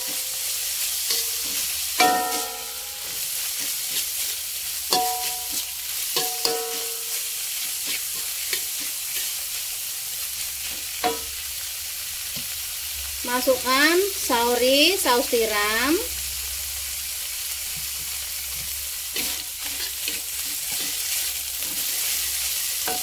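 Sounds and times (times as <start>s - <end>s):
metal spatula scraping wok: 0.0s - 9.8s, 19.0s - 23.0s
vegetables sizzling in oil: 0.0s - 23.0s.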